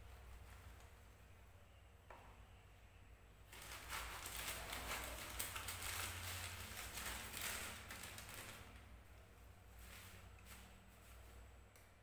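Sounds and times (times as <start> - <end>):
plastic pouch crinkling: 3.5 - 8.9.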